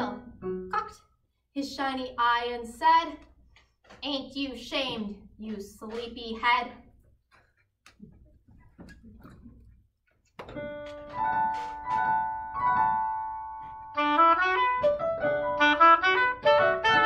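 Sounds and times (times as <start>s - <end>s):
piano chords: 0.0s - 0.9s, 10.4s - 17.0s.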